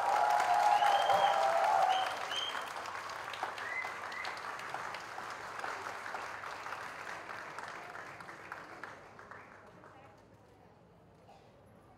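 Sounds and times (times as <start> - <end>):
people whooping: 0.0 - 2.7
audience applauding: 0.0 - 9.6.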